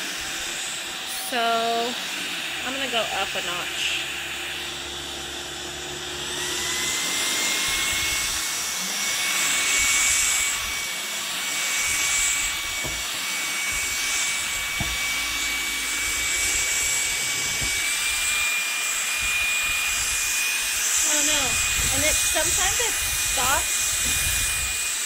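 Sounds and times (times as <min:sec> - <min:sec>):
vacuum cleaner motor whine: 0:00.0 - 0:25.0.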